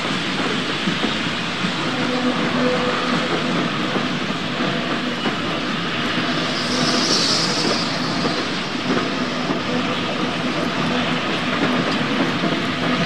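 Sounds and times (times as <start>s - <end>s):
model train rolling on track: 0.0s - 13.0s
brief hiss: 5.7s - 10.1s.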